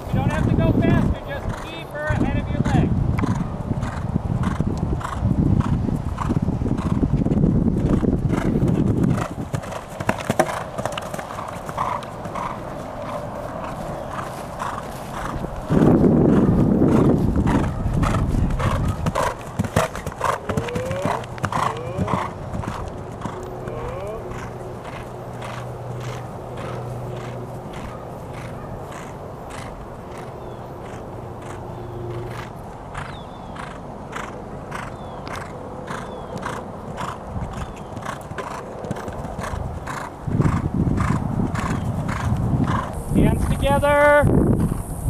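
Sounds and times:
horse hoofbeats on grass: 0.0 - 44.8
loud low rushing noise: 2.2 - 33.0.

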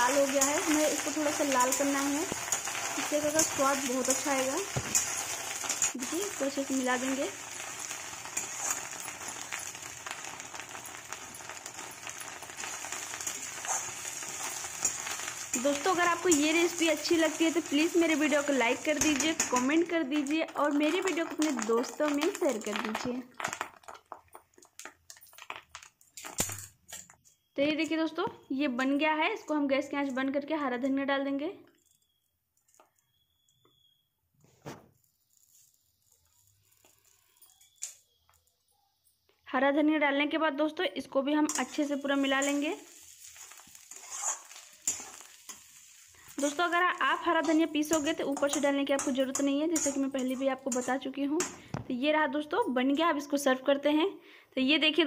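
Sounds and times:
metal spatula stirring: 0.0 - 22.8, 41.4 - 51.7
fish roe sizzling in oil: 0.0 - 25.9, 34.9 - 38.2, 41.4 - 51.8.

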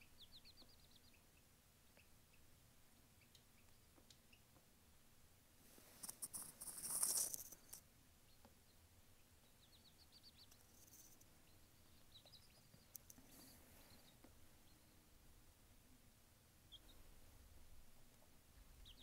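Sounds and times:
chick peeping: 0.0 - 4.6, 8.2 - 15.1, 16.6 - 17.2, 18.1 - 19.0
rustling: 5.6 - 7.8.

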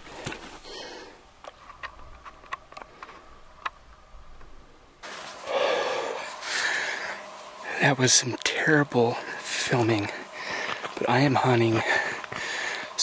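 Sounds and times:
man blowing out a breath: 5.4 - 7.2, 12.0 - 13.0.

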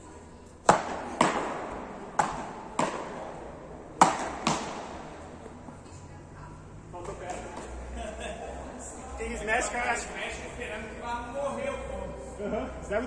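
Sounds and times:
paddles striking ball: 0.6 - 5.6.

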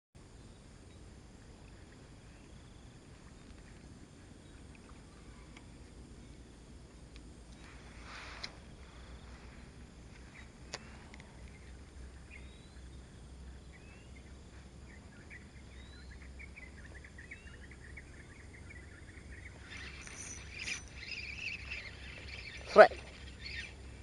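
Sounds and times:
low steady hum: 0.2 - 24.0
birds singing: 8.8 - 24.0.

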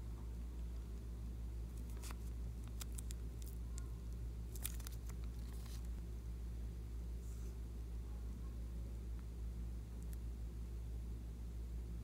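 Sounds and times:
low steady hum: 0.0 - 12.0
sticky slime crackles and pops: 1.8 - 3.9, 4.5 - 5.9.

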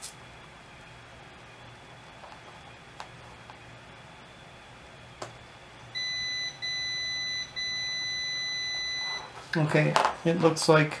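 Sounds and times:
multimeter high beep: 6.0 - 9.3.

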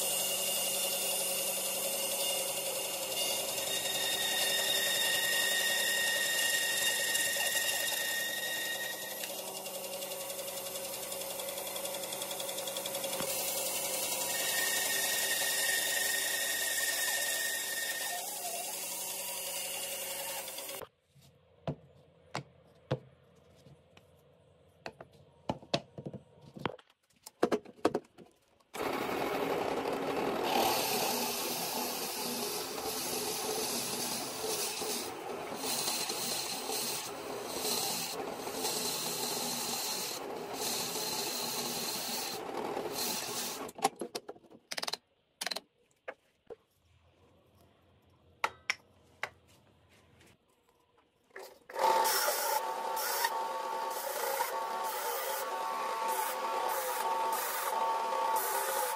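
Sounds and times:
drill press boring into wood: 0.0 - 20.8, 28.8 - 43.8, 51.7 - 58.9.

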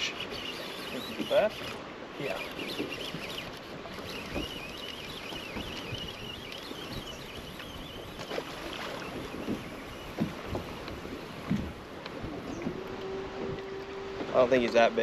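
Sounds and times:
wind on microphone: 0.0 - 14.2
water lapping against boat hull: 0.0 - 15.0
knocks on boat: 9.3 - 10.8, 11.4 - 14.8.

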